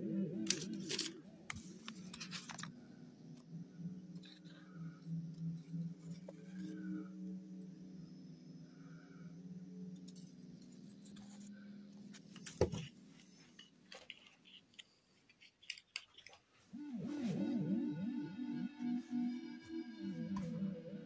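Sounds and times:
wavering swooping tone: 0:00.0 - 0:11.8, 0:16.7 - 0:21.0
low two-note drone: 0:00.0 - 0:12.0, 0:16.7 - 0:21.0.

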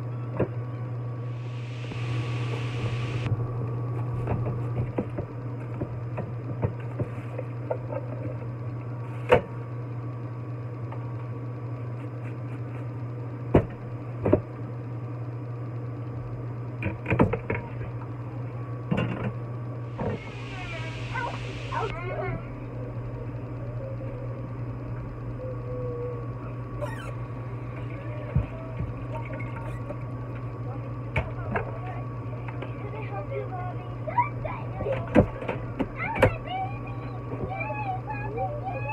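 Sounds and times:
steady low hum: 0:00.0 - 0:38.9
hissing noise: 0:01.3 - 0:03.3, 0:19.9 - 0:22.0.

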